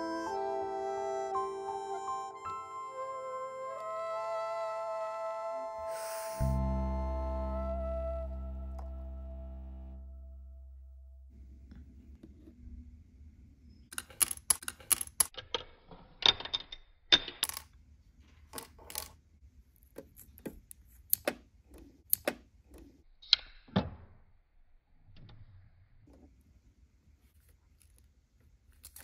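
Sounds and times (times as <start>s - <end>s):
miniatures clicking and tapping: 13.9s - 17.8s.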